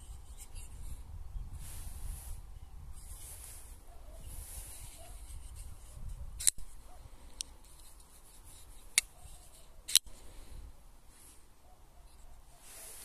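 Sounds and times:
wind rumble on microphone: 0.0s - 7.2s.

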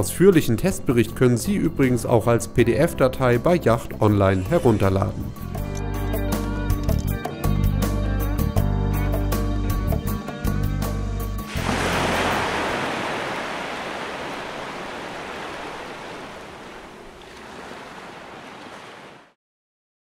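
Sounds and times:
sea waves rushing: 11.5s - 19.4s.

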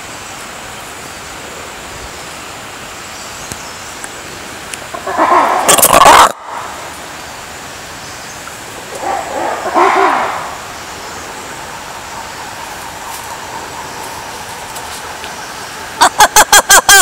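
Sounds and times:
steady background hiss: 0.0s - 17.0s
lemur low call: 4.9s - 7.3s, 8.4s - 17.0s.

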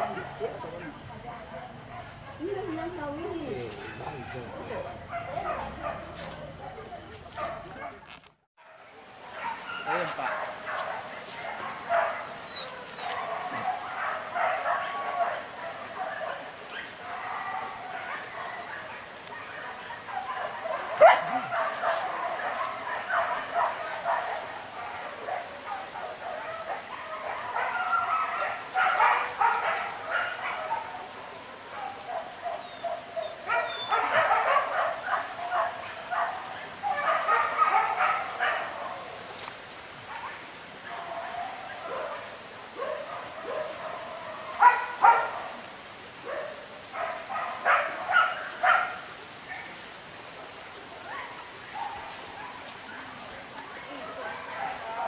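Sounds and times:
dogs barking and yelping: 0.0s - 8.2s, 8.8s - 55.0s
faint dog yelps: 16.8s - 21.8s.

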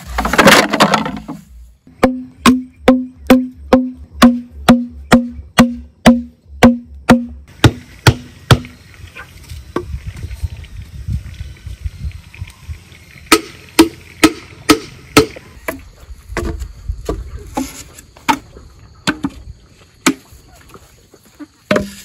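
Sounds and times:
bamboo poles knocking: 0.0s - 8.8s, 13.3s - 15.8s, 16.4s - 20.4s, 21.7s - 22.0s
bamboo stake being pounded: 0.1s - 8.8s, 13.3s - 15.8s, 20.0s - 20.4s, 21.7s - 22.0s.

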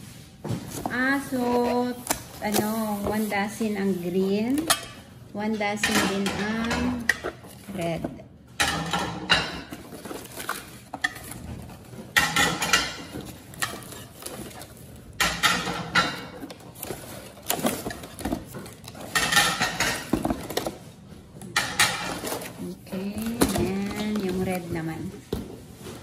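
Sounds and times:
cardboard rustling and scraping: 0.0s - 4.6s, 9.7s - 12.2s, 13.0s - 15.1s, 16.2s - 19.2s, 22.1s - 26.0s.

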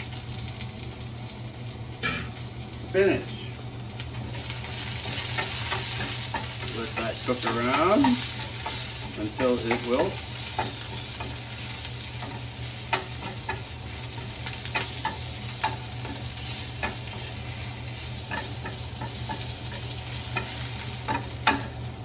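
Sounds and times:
vegetables sizzling in hot oil: 0.0s - 22.0s
wooden spoon scraping a pan: 4.6s - 21.8s.

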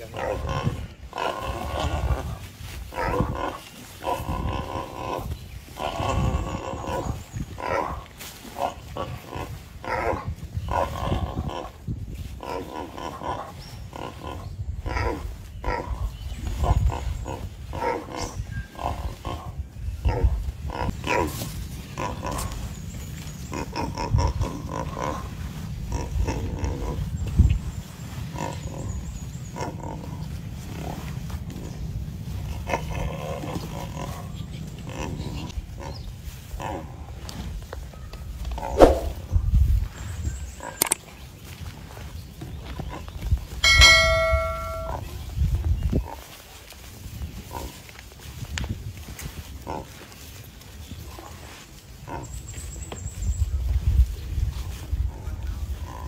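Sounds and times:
wild boar squealing and grunting: 0.0s - 11.8s, 12.4s - 22.6s.

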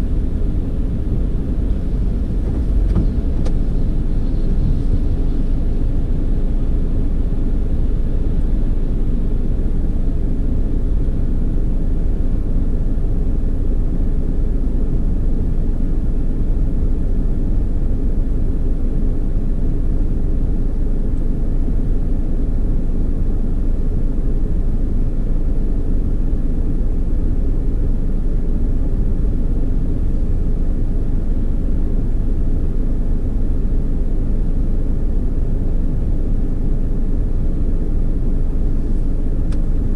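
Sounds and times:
car wash machinery rumbling: 0.0s - 9.3s.

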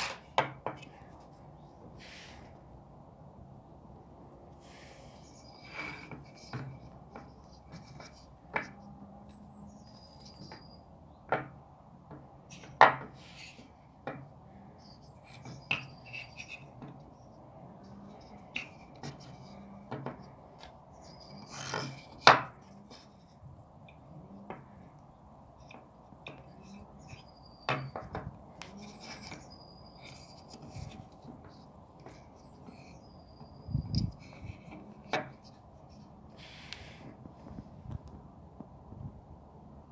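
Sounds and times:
light scraping and rubbing: 4.6s - 10.8s, 12.5s - 13.9s, 14.8s - 38.0s.

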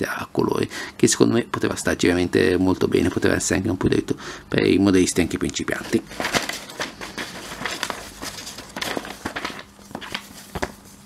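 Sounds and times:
paper pages rustling: 5.2s - 11.0s.

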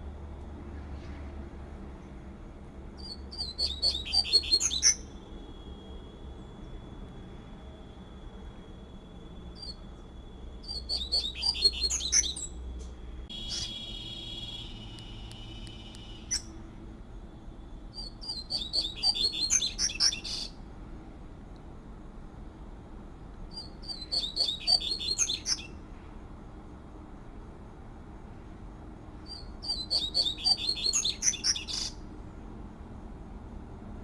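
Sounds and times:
bird singing high twittering notes: 3.0s - 5.9s, 10.6s - 12.6s, 13.3s - 16.6s, 17.9s - 20.6s, 23.5s - 25.8s, 29.3s - 32.0s.

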